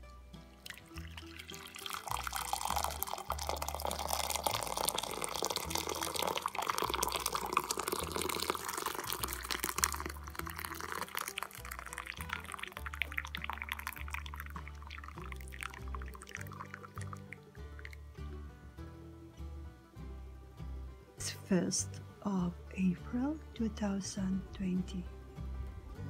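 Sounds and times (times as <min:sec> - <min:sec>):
background music with bass line: 0:00.0 - 0:26.0
hot water pouring into cup: 0:00.6 - 0:18.0.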